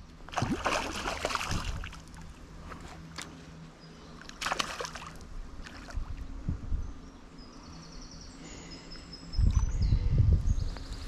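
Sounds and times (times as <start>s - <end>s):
soft water movement: 0.0s - 6.4s
fish splashing at water surface: 0.3s - 2.2s, 4.4s - 6.0s.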